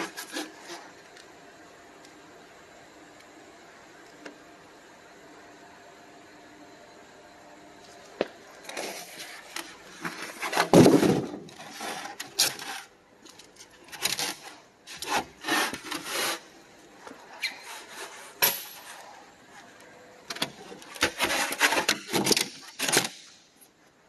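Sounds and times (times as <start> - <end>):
styrofoam scraping together: 8.7 - 12.9, 14.2 - 16.5, 21.0 - 22.1.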